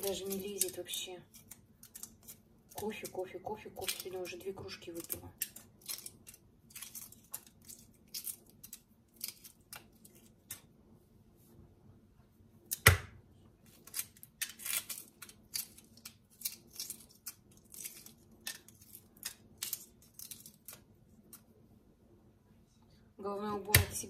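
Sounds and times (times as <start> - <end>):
egg shell crackling: 0.0 - 10.7, 13.7 - 21.5.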